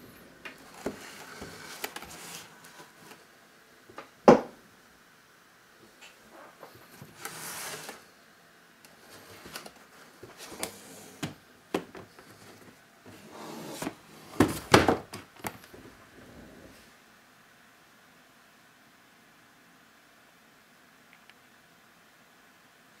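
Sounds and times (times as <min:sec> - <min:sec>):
cardboard box sliding on desk: 0:00.6 - 0:03.2, 0:06.7 - 0:08.1, 0:09.0 - 0:11.4, 0:12.2 - 0:14.7.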